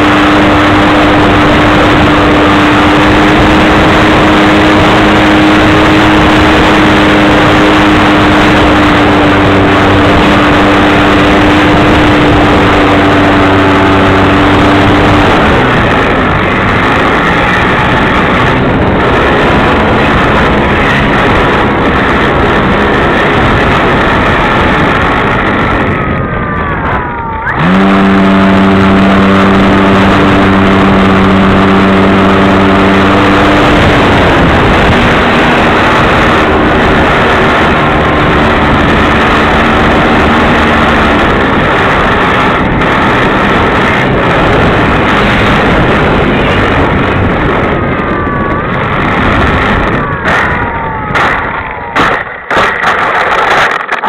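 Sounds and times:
wind rush on microphone: 0.0 - 54.0.

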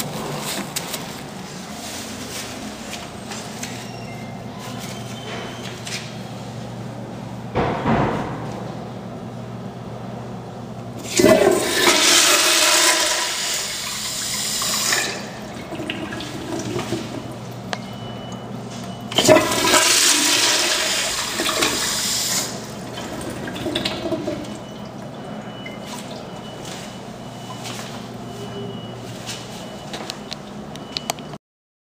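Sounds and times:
toilet flushing: 11.0 - 18.3, 19.0 - 26.6.

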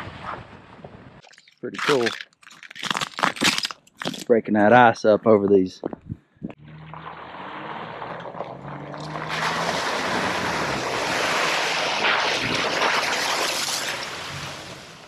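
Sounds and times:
splashing water: 6.7 - 14.8.

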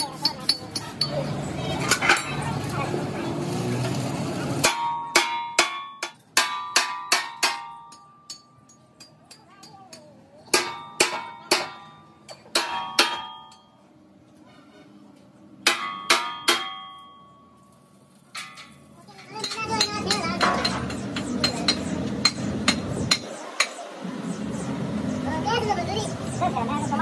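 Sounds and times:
hammer striking steel blade: 4.6 - 13.8, 15.6 - 17.3, 19.4 - 23.8.

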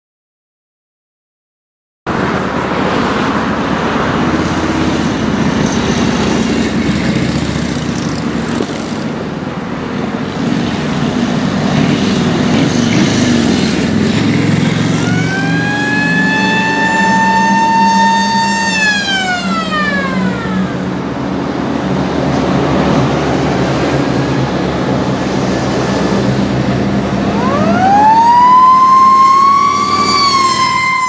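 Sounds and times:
military vehicle engines driving past: 2.1 - 31.0
siren wailing: 15.0 - 21.2, 27.2 - 31.0.

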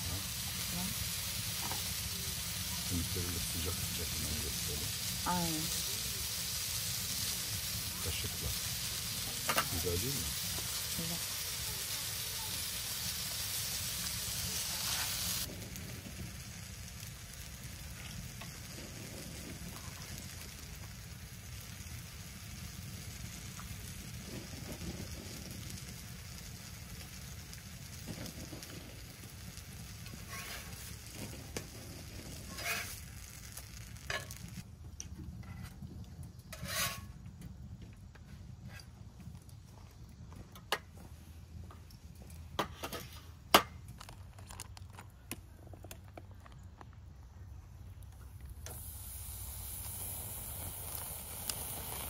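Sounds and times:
pancakes sizzling in frying pan: 0.0 - 34.7, 35.4 - 37.8, 48.2 - 52.0
metal spatula scraping pan: 30.3 - 30.8, 32.5 - 33.0, 36.5 - 37.1.

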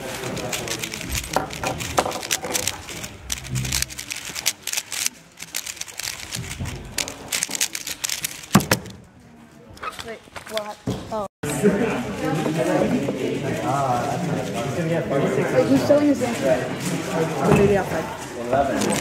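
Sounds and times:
puzzle cube plastic clicks: 0.0 - 9.0.

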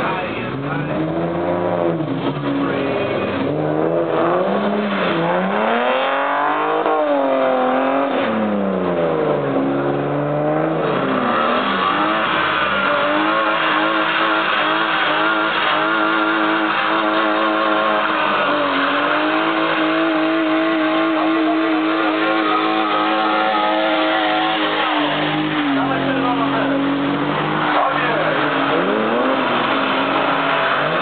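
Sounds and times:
car engines revving: 0.0 - 31.0
tyres spinning on wet track: 10.9 - 31.0.

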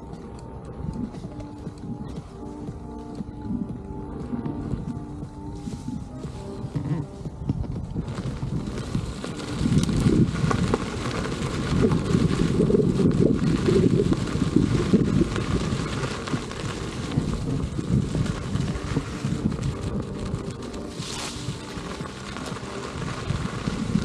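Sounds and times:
wind buffeting microphone: 0.0 - 24.0
short hiss: 20.9 - 21.7.

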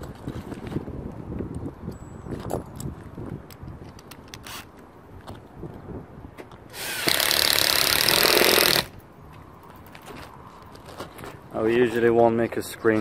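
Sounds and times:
power drill driving screw: 4.4 - 4.7, 6.7 - 8.9.

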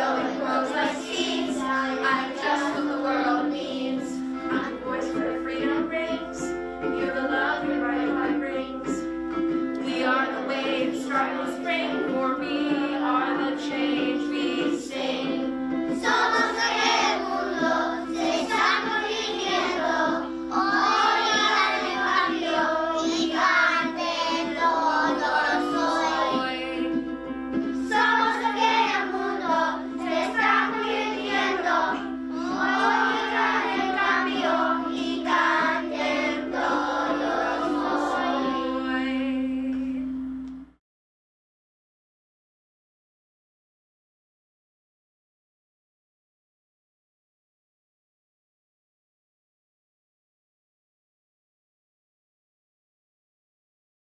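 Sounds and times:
children singing together: 0.0 - 9.0, 9.8 - 26.9, 27.8 - 39.4
musical accompaniment of held notes: 0.0 - 40.6.

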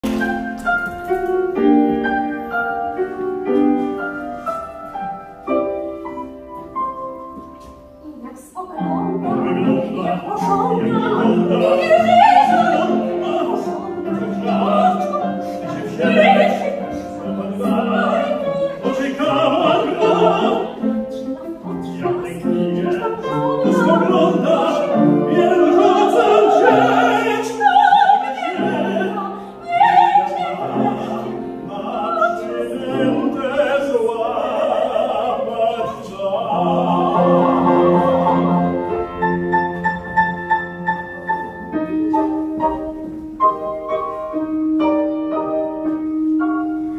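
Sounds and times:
grand piano: 0.0 - 46.9
operatic singing: 8.5 - 39.9.

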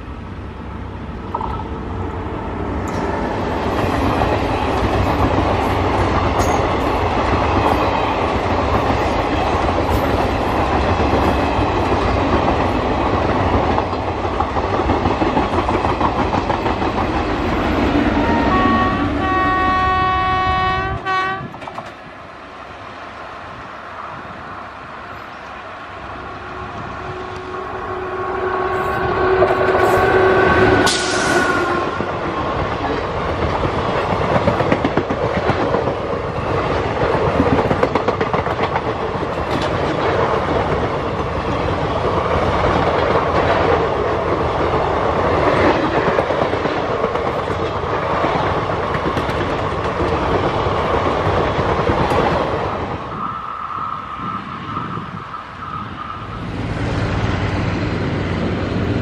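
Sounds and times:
train coaches clickety-clack: 0.8 - 59.0
locomotive air horn chord: 18.2 - 21.5, 27.1 - 32.0.

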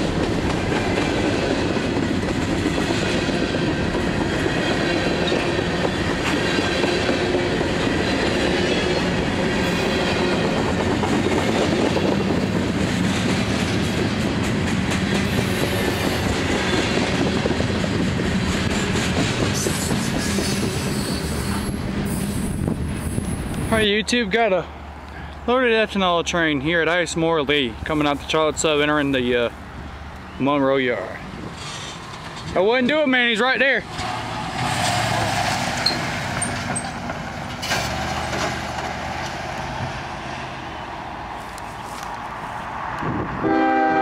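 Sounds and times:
wheels clicking over rail joints: 0.0 - 21.8, 31.2 - 39.8
train wheels rumbling on rails: 0.0 - 24.8, 26.8 - 44.0.

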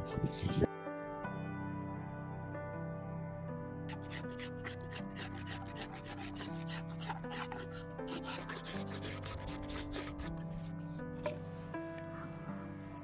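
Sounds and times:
soft background music: 0.0 - 13.0
knife scraping wood: 3.9 - 11.4.

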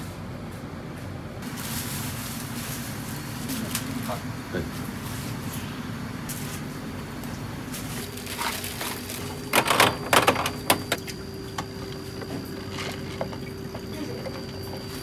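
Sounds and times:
steady hum: 0.0 - 15.0
clattering and rustling knocks: 7.8 - 15.0.

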